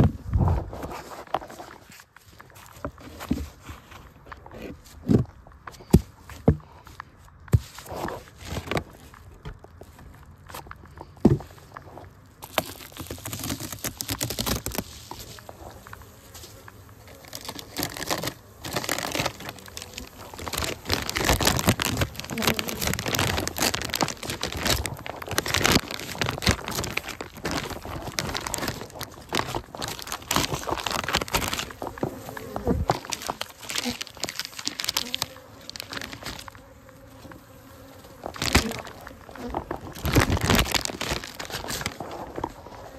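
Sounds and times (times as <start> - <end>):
foil insulation crinkling: 7.5 - 42.9
bees buzzing: 15.0 - 42.1.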